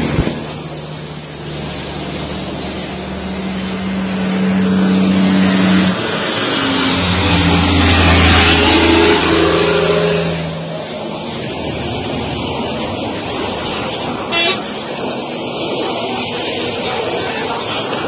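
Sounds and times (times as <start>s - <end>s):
vehicles driving past: 0.0s - 18.0s.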